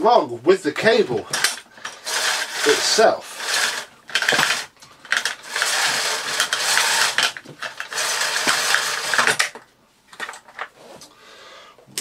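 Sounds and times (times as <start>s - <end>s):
vacuum cord reel ratcheting: 1.3s - 9.6s.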